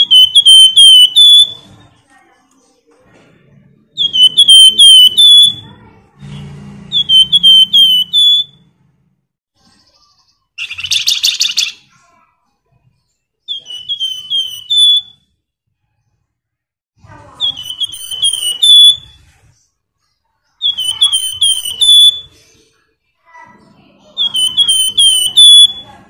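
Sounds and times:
songbird whistling notes: 0:00.0 - 0:01.7, 0:04.0 - 0:05.7, 0:06.9 - 0:08.6, 0:13.5 - 0:15.3, 0:17.4 - 0:19.2, 0:20.6 - 0:22.5, 0:24.1 - 0:26.0
buzzy bird trill: 0:00.0 - 0:01.8, 0:04.0 - 0:05.8, 0:06.9 - 0:08.6, 0:09.7 - 0:12.0, 0:13.5 - 0:15.4, 0:17.3 - 0:19.4, 0:20.6 - 0:22.6, 0:24.0 - 0:26.0.

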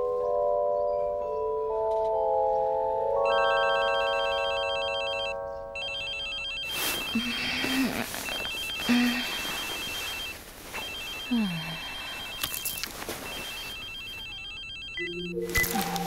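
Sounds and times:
chime-like music notes: 0:00.0 - 0:07.6
electronic telephone ringing: 0:03.2 - 0:16.0.

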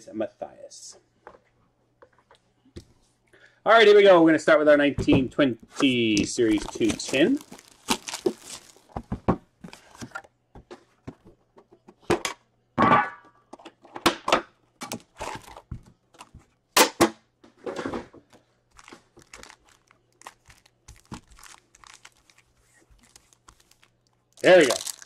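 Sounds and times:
foil card packs crinkling: 0:06.2 - 0:09.1, 0:18.7 - 0:25.0
plastic wrap crinkling and tearing: 0:06.4 - 0:09.0, 0:18.7 - 0:25.0.

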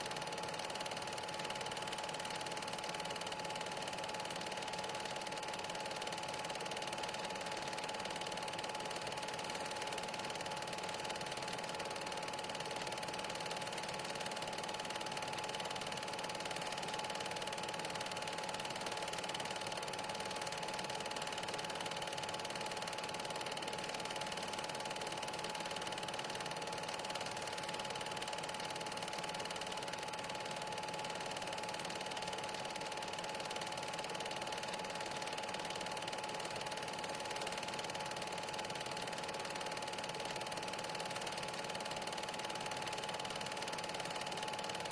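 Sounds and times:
film projector whirring: 0:00.0 - 0:44.9.

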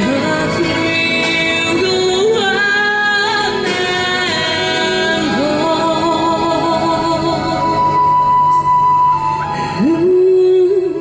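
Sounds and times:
backing music: 0:00.0 - 0:11.0
woman singing a pop ballad: 0:00.0 - 0:11.0.

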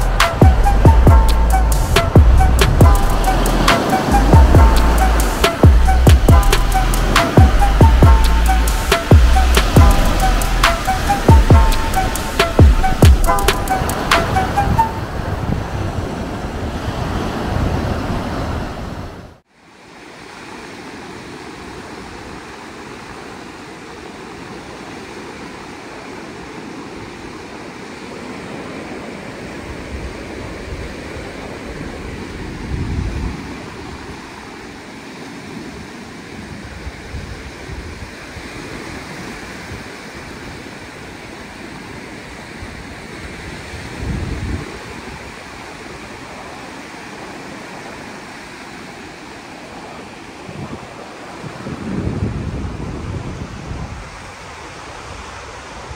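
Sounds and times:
wind buffeting microphone: 0:00.0 - 0:19.4, 0:29.6 - 0:48.4, 0:49.7 - 0:55.9
sea waves washing on sand: 0:00.0 - 0:55.9.

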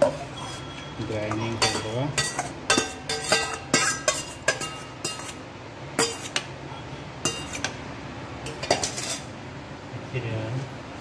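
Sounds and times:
steel utensils clinking: 0:00.0 - 0:05.4, 0:06.0 - 0:06.5, 0:07.2 - 0:07.8, 0:08.4 - 0:09.3.

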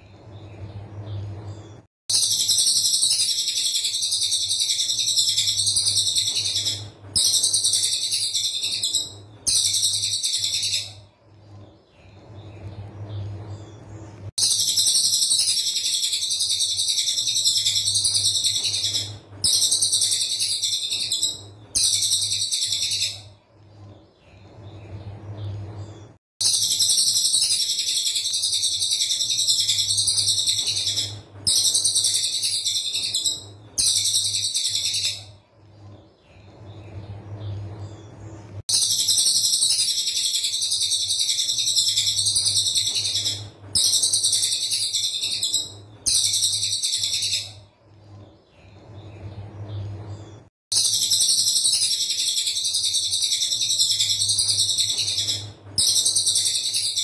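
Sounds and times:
bird singing shrill rapid notes: 0:02.1 - 0:11.0, 0:14.4 - 0:23.3, 0:26.4 - 0:35.3, 0:38.7 - 0:47.6, 0:50.7 - 0:57.0.

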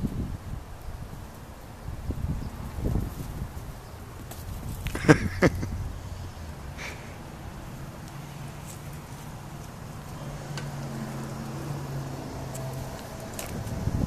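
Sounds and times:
distant engine drone: 0:05.0 - 0:14.0.

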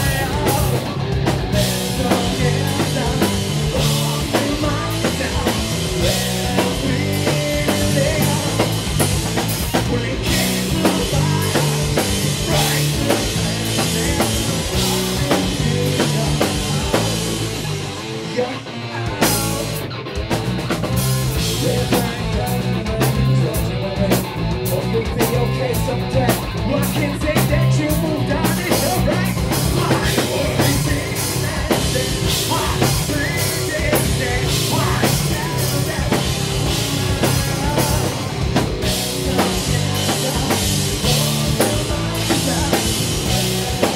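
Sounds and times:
drum kit: 0:00.0 - 0:43.9
live rock band playing: 0:00.0 - 0:43.9.

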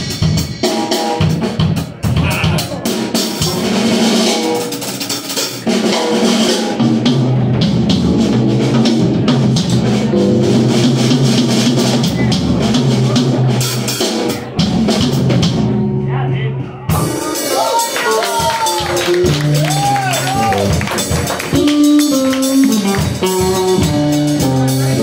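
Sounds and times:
drum kit with cymbals: 0:00.0 - 0:16.0, 0:16.8 - 0:25.0
electric bass low notes: 0:06.6 - 0:17.0, 0:19.0 - 0:25.0
electric guitar: 0:17.0 - 0:25.0.

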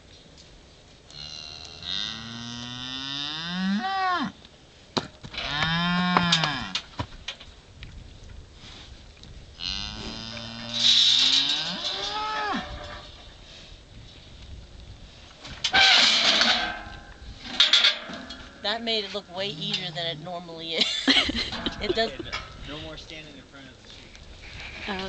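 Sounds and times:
cattle mooing: 0:01.1 - 0:04.3, 0:05.4 - 0:06.8, 0:09.6 - 0:13.0.

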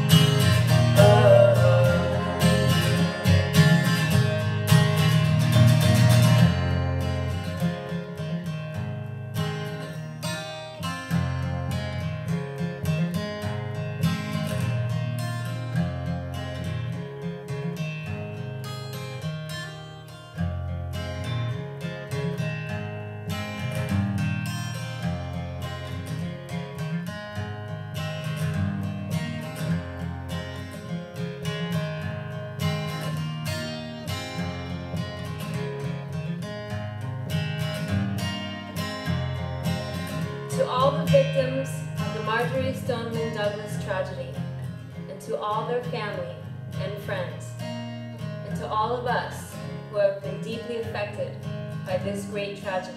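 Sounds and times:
acoustic guitar strumming: 0:00.0 - 0:52.9
person singing: 0:00.8 - 0:03.6.

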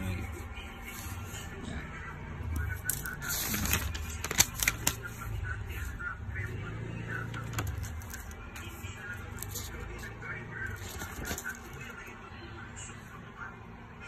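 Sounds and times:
notebook pages rustling: 0:00.2 - 0:01.5, 0:02.6 - 0:06.0, 0:07.3 - 0:12.1.

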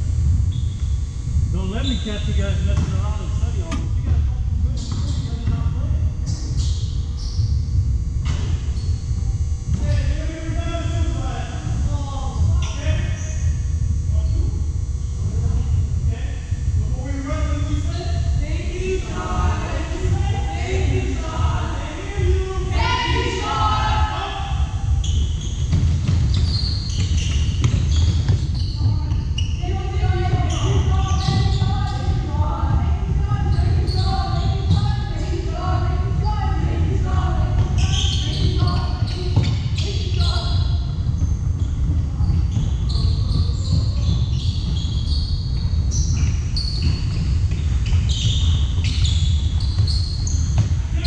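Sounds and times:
basketballs bouncing: 0:02.6 - 0:13.5, 0:18.7 - 0:51.0
sneakers squeaking on hardwood: 0:24.9 - 0:51.0.

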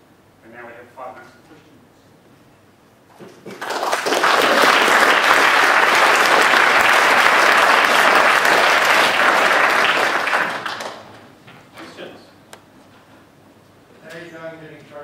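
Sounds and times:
audience applauding: 0:03.5 - 0:11.2.

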